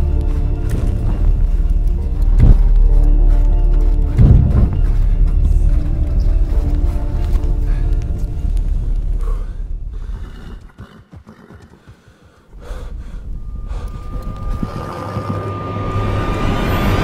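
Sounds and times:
low rumble drone: 0:00.0 - 0:10.6, 0:12.5 - 0:17.0
rush of noise: 0:12.5 - 0:17.0
thin high tone: 0:13.4 - 0:17.0.

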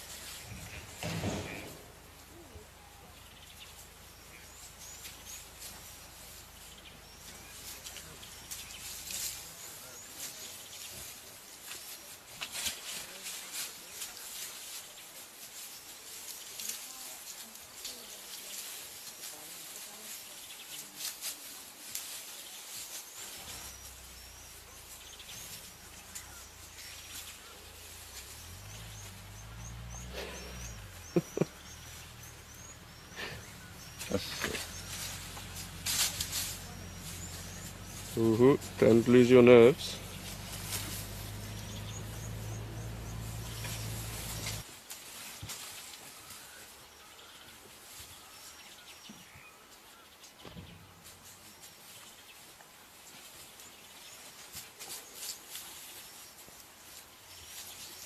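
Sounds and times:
small birds chirping: 0:00.0 - 0:44.7, 0:45.4 - 0:58.0
faint bush ambience: 0:00.0 - 0:58.0
low steady rumble: 0:23.4 - 0:44.6.

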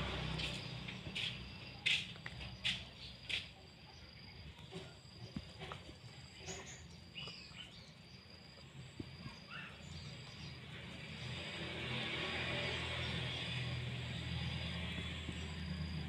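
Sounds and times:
insect drone: 0:00.0 - 0:16.0
bird chirps: 0:06.3 - 0:08.3, 0:09.2 - 0:10.7.

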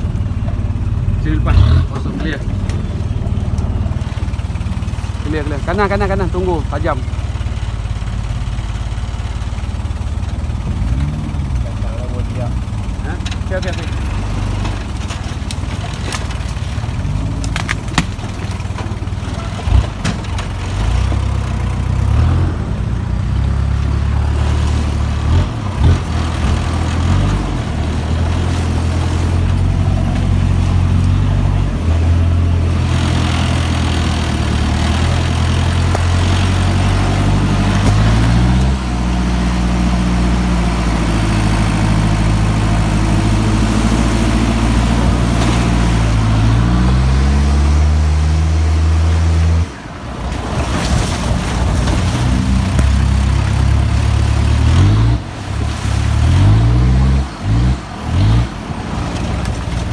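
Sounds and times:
suv engine running under load: 0:00.0 - 0:59.9.

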